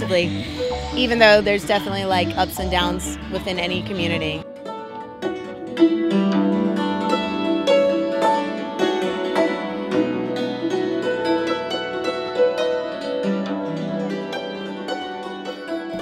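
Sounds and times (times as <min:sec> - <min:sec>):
held low notes: 0:00.0 - 0:04.4
quickly picked string melody: 0:00.0 - 0:16.0.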